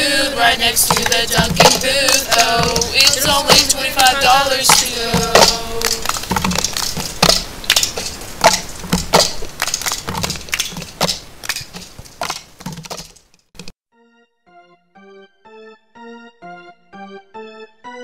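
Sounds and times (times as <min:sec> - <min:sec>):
footsteps running on hard floor: 0:04.7 - 0:13.2.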